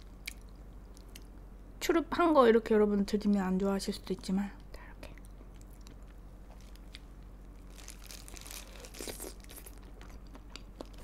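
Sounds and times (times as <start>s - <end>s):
person chewing crunchy food: 5.5s - 11.0s.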